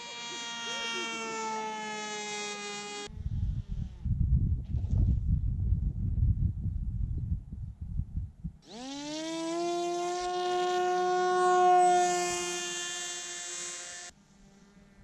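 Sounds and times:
electric motor propeller whine: 0:00.0 - 0:04.2, 0:08.6 - 0:15.0
low rumbling noise: 0:03.1 - 0:08.6.

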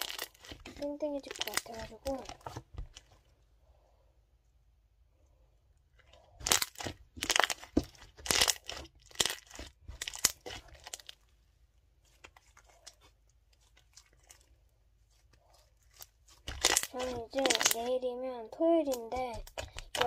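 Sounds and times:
slime crackling and popping: 0:00.0 - 0:03.1, 0:06.3 - 0:11.3, 0:12.0 - 0:18.0, 0:18.8 - 0:20.0.

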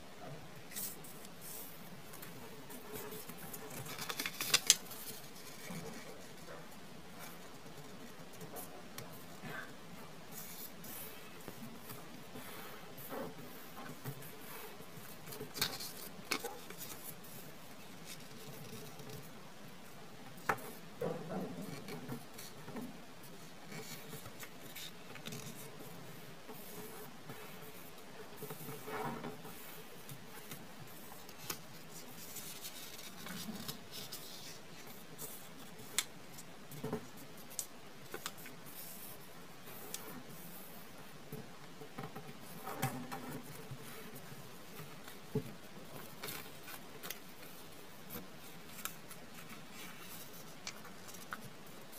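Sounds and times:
paper being folded and creased: 0:00.7 - 0:06.5, 0:15.0 - 0:19.3, 0:23.4 - 0:25.6, 0:29.5 - 0:40.7, 0:42.5 - 0:51.9.

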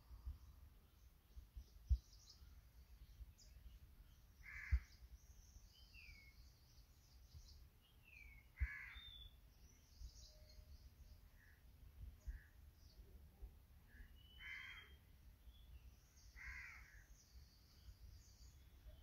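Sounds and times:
small birds twittering: 0:00.0 - 0:19.0
descending whistled bird calls: 0:01.0 - 0:11.1, 0:13.9 - 0:19.0
crow cawing: 0:04.4 - 0:05.0, 0:08.6 - 0:09.1, 0:14.4 - 0:15.0, 0:16.4 - 0:17.0.

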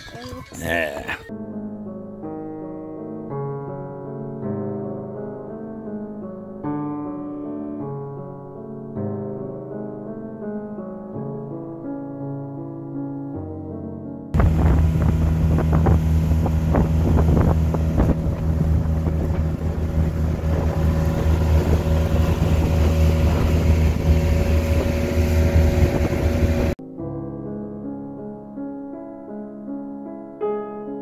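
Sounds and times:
wind: 0:00.0 - 0:01.3, 0:14.4 - 0:26.8
piano music: 0:01.3 - 0:31.0
boat engine running: 0:14.4 - 0:26.8
water noise: 0:14.4 - 0:26.8.

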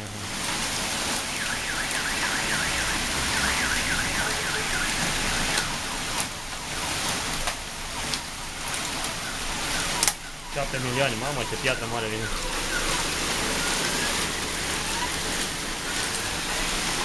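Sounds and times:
heavy rain and hail: 0:00.0 - 0:17.0
warbling electronic alarm: 0:01.3 - 0:06.8
sharp hail ticks: 0:01.7 - 0:17.0.

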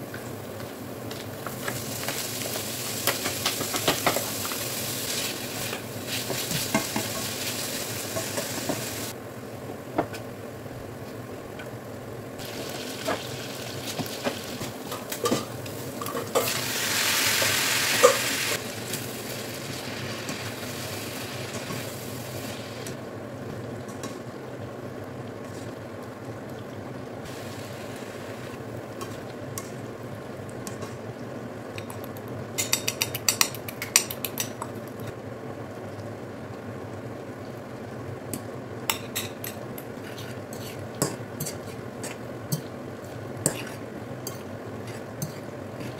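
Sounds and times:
bacon sizzling in a pan: 0:00.0 - 0:09.2, 0:12.4 - 0:23.0, 0:27.2 - 0:30.3.

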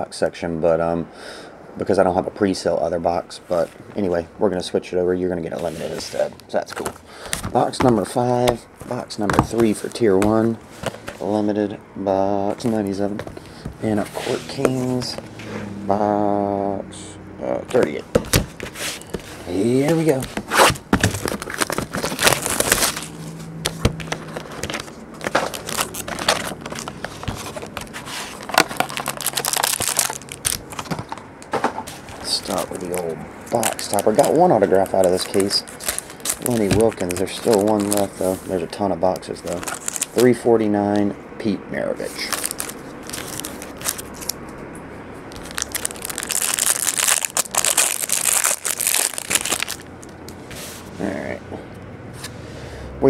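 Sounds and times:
plastic shrink-wrap crinkling: 0:19.0 - 0:23.3, 0:23.9 - 0:31.2, 0:32.2 - 0:40.4, 0:42.2 - 0:44.4, 0:45.3 - 0:50.1
cardboard box clicks and rustles: 0:19.8 - 0:31.2, 0:31.8 - 0:38.1.

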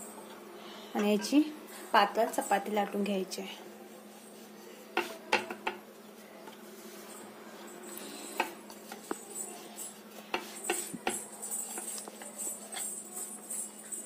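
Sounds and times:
faint steady hum: 0:00.0 - 0:14.0
rolling pin knocking on wooden board: 0:05.0 - 0:05.8.

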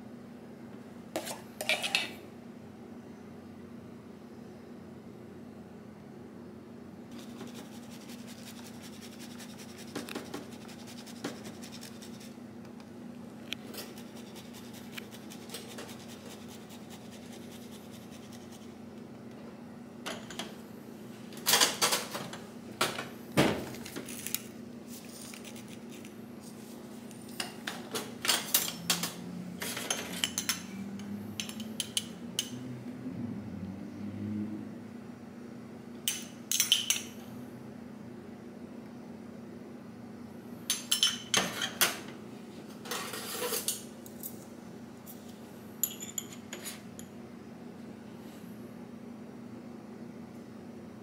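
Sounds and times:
steady low hum: 0:00.0 - 0:21.4
utensils and dishes clinking: 0:01.2 - 0:02.2, 0:28.2 - 0:32.6, 0:36.1 - 0:37.2, 0:40.7 - 0:42.0, 0:45.8 - 0:47.1.

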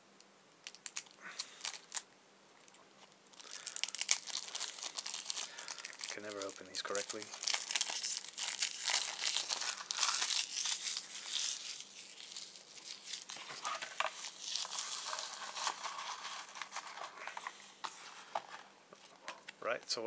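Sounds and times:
cellophane wrapper crinkling and tearing: 0:00.6 - 0:19.6.

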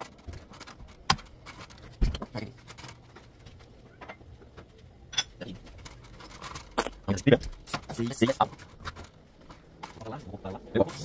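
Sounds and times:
glass and dishes clinking: 0:05.1 - 0:05.4.

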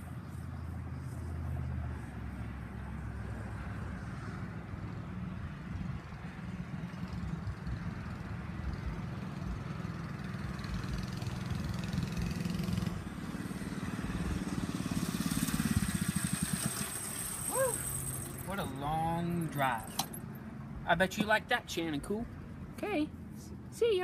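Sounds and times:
distant mini bike engine: 0:05.7 - 0:20.4.

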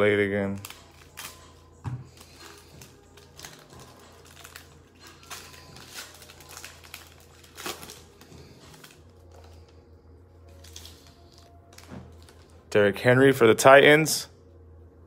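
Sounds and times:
low steady hum: 0:00.0 - 0:15.0
foil wrapper crinkling: 0:00.3 - 0:01.6, 0:02.2 - 0:09.7, 0:10.5 - 0:12.5.

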